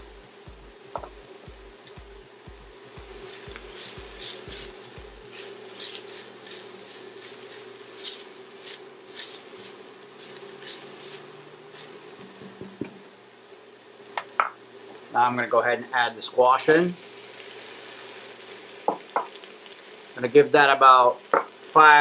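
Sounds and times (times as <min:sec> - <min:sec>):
vegetables sauteing in oil: 0:00.0 - 0:22.0
spatula scraping pot: 0:03.3 - 0:11.9.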